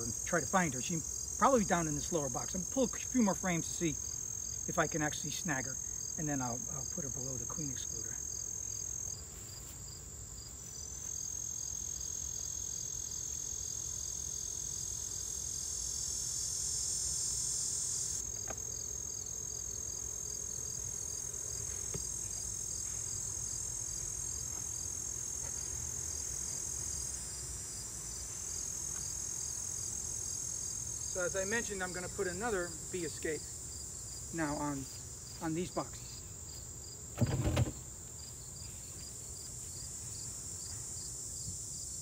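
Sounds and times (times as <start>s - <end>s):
crickets chirping and trilling: 0.0s - 42.0s
faint knocks of hive boxes: 21.6s - 23.0s.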